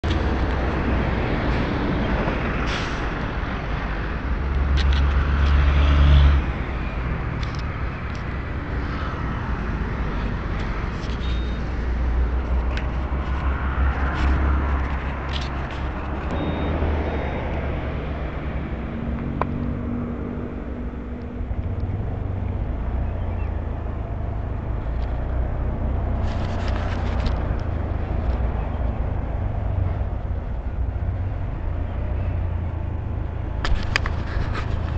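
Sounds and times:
road noise: 0.0s - 34.9s.

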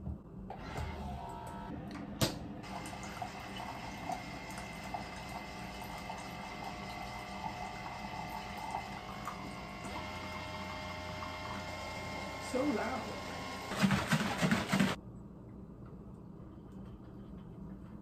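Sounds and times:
coffee maker pump brewing: 2.6s - 15.0s.

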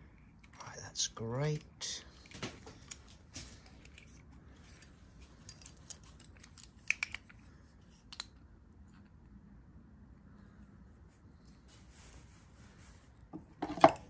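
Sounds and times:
soft handling noise: 0.0s - 9.5s, 10.1s - 14.0s
metal tools clicking: 1.5s - 7.4s.

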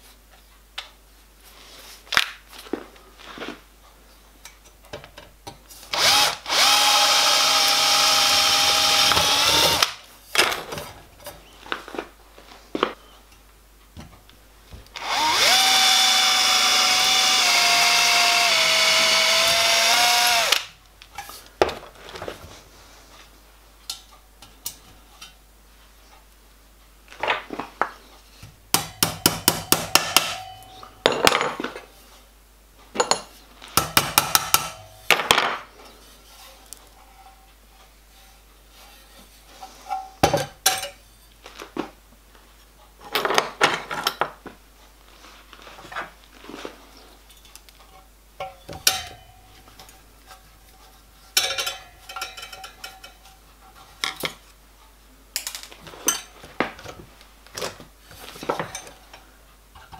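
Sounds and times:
cordless drill whining: 5.9s - 9.9s, 15.0s - 20.6s.

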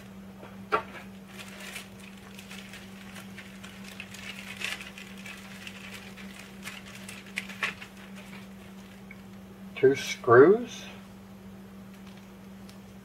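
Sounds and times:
plastic bag rustling and crinkling: 1.0s - 9.4s.

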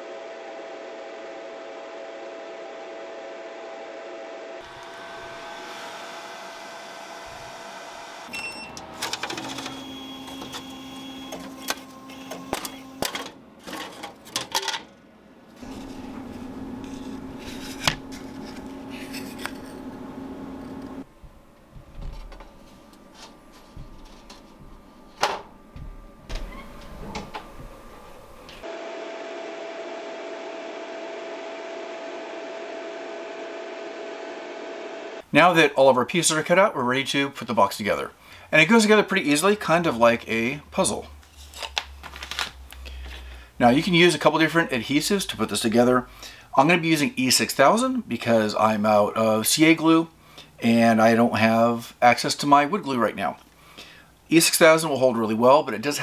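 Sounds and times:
laser cutter whirring: 4.6s - 13.1s
laser cutter humming: 4.6s - 13.2s, 15.6s - 21.0s, 24.6s - 35.2s.

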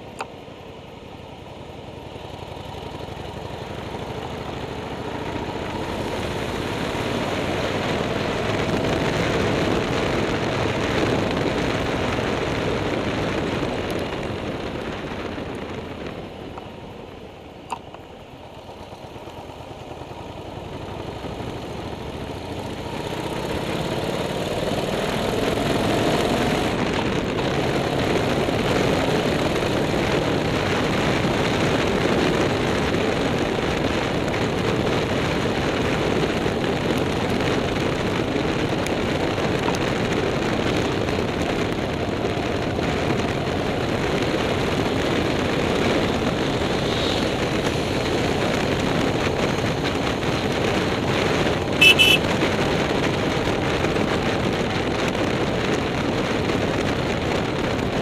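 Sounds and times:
road and wind noise: 0.0s - 58.0s
vehicle engine under load: 0.0s - 58.0s
loud sharp sound: 51.8s - 52.2s.

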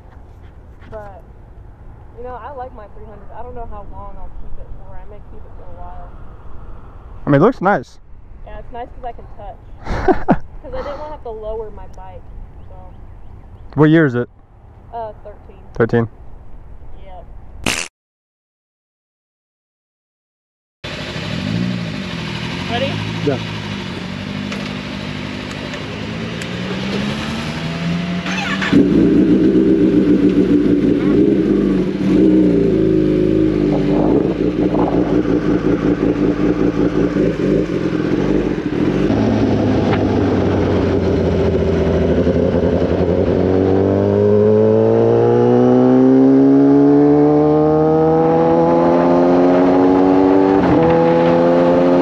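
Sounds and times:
motorcycle engine accelerating: 20.8s - 52.0s.

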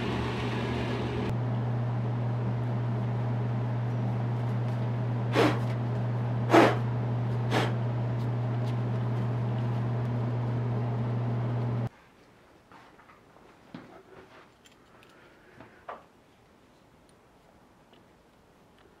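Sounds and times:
low hum: 0.0s - 11.9s.

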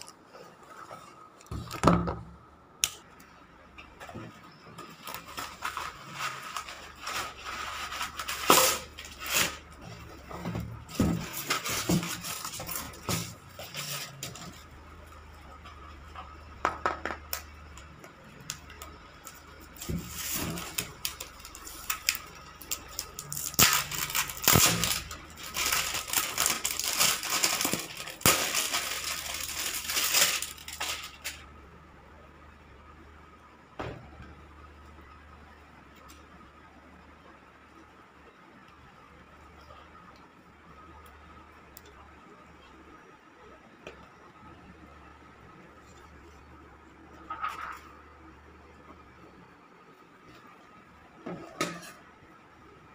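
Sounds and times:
plastic film crinkling: 4.8s - 10.2s, 10.8s - 14.8s, 18.8s - 31.5s.

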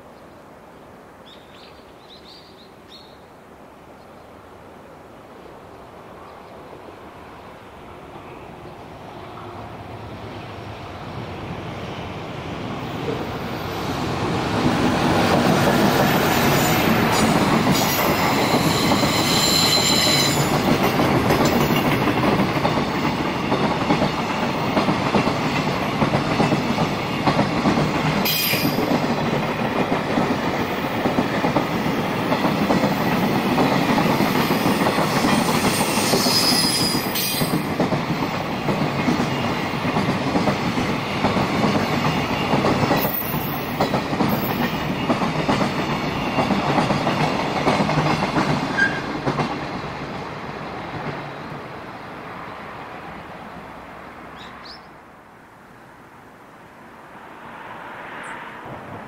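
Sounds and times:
train wheels clattering on rails: 13.0s - 51.4s
high wheel squeals: 16.4s - 20.6s, 35.4s - 37.6s, 48.8s - 49.1s.

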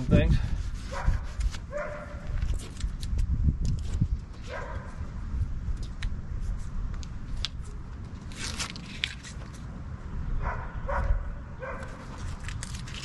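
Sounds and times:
squeegee scraping vinyl: 0.0s - 3.2s
dog barking: 0.9s - 2.2s, 4.5s - 4.9s, 10.4s - 12.0s.

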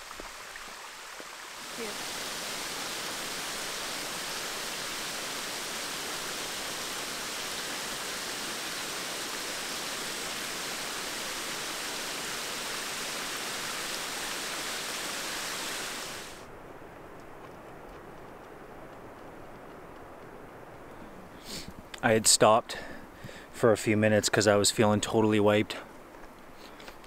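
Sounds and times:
waterfall rushing: 0.0s - 16.4s.

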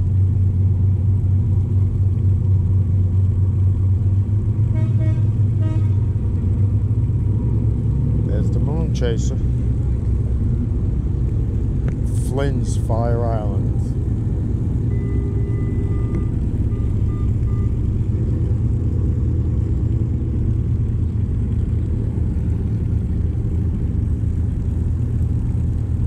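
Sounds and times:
engine rumbling: 0.0s - 26.0s
faint short beeps: 14.9s - 17.9s.

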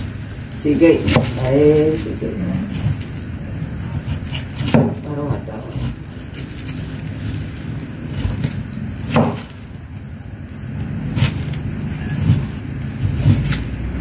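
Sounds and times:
low steady rumble: 0.0s - 14.0s
knife chopping on wooden table: 1.1s - 1.5s, 4.1s - 5.9s, 9.0s - 9.5s.

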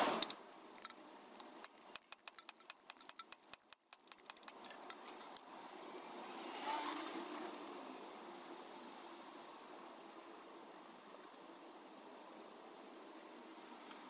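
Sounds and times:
ratchet wrench clicking: 0.1s - 5.4s.

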